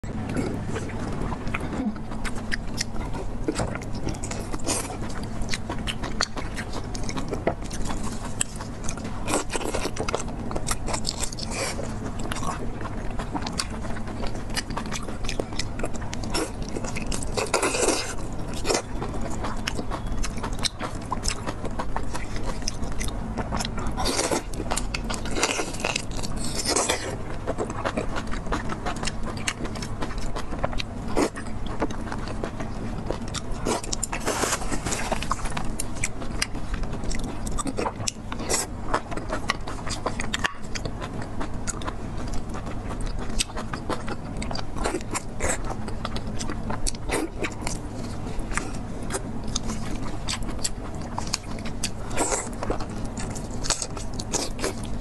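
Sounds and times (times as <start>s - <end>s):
biting and chewing: 0.0s - 55.0s
steady low hum: 0.0s - 55.0s.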